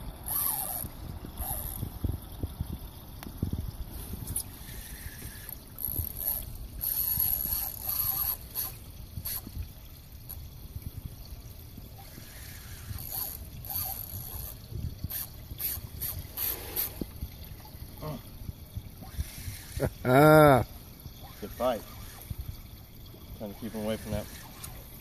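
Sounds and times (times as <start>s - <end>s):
fishing reel being cranked: 0.2s - 2.2s, 4.2s - 9.6s, 10.3s - 10.5s, 12.0s - 17.2s, 19.0s - 22.7s, 23.4s - 25.0s.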